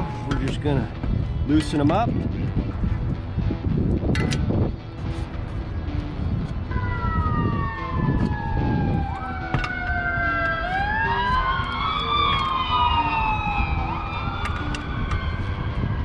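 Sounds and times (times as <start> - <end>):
sirens wailing: 6.7 - 16.0.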